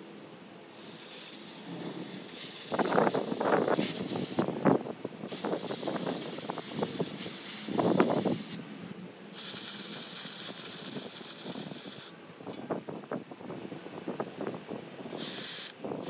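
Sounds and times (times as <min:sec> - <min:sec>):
air blow gun hissing: 0:00.7 - 0:04.5, 0:05.2 - 0:08.6, 0:09.3 - 0:12.2, 0:15.0 - 0:16.0.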